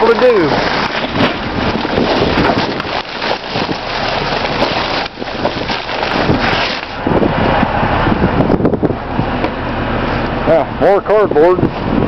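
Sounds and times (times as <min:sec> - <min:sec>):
plastic bags rustling and tearing: 0:00.0 - 0:07.0.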